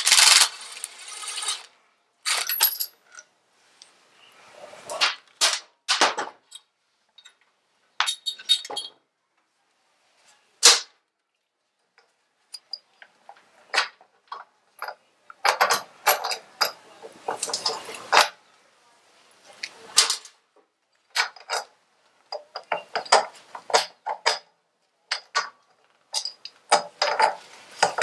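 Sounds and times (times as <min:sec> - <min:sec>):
metal tools clinking and clanking: 0:02.3 - 0:03.9, 0:08.0 - 0:09.0, 0:12.5 - 0:13.4, 0:14.3 - 0:18.4, 0:21.0 - 0:21.7, 0:22.3 - 0:24.4, 0:25.1 - 0:28.0.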